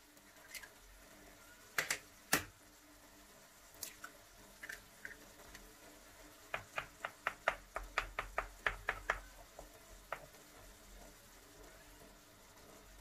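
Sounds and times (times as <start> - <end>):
utensil tapping in frying pan: 5.1 - 11.3.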